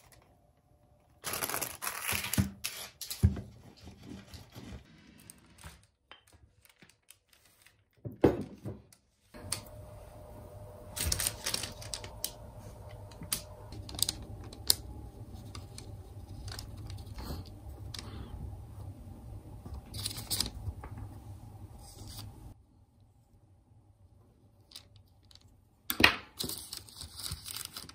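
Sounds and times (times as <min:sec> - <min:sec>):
faint steady hum: 0:09.2 - 0:27.9.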